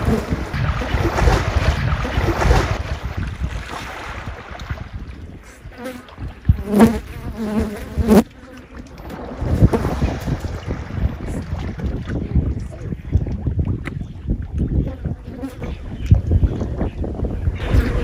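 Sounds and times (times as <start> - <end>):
water sloshing and splashing: 0.0 - 6.5, 8.3 - 14.7
wind on microphone: 0.0 - 18.0
fly buzzing: 6.6 - 8.7.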